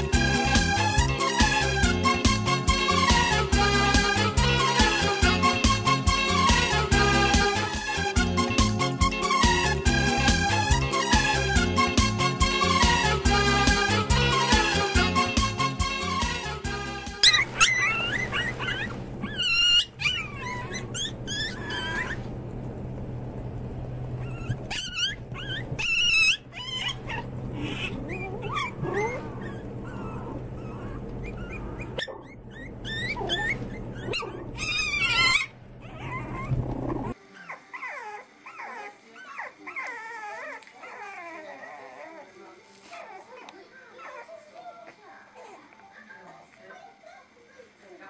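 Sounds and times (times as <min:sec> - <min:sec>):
puppies squeaking softly: 0:17.2 - 0:22.4, 0:24.1 - 0:47.8
puppies yipping and whimpering: 0:17.2 - 0:22.4, 0:24.0 - 0:47.6
steady low hum: 0:17.5 - 0:37.2.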